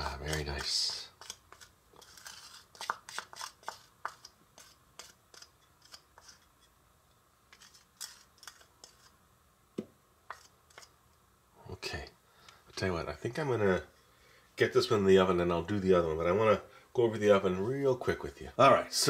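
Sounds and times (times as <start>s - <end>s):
wooden spoon scraping plastic bowl: 0.0s - 6.7s, 7.5s - 9.2s, 10.3s - 11.0s.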